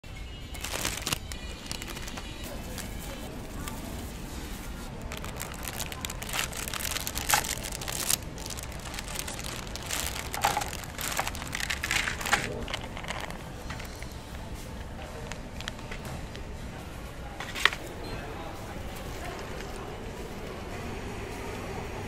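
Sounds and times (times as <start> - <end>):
plastic wrapper crinkling: 0.5 - 4.2, 4.8 - 14.1.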